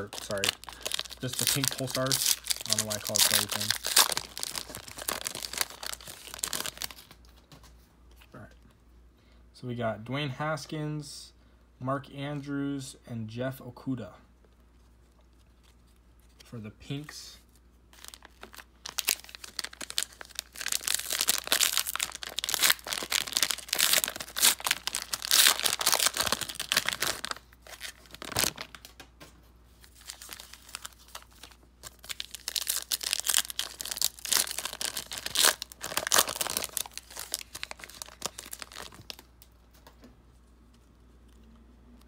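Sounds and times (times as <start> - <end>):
card pack wrappers crinkling: 0.0 - 7.4, 15.2 - 29.0, 29.8 - 40.0.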